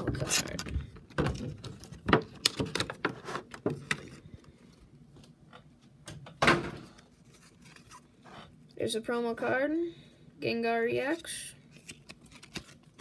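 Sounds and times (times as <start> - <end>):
plastic packaging crinkling: 11.7 - 13.0.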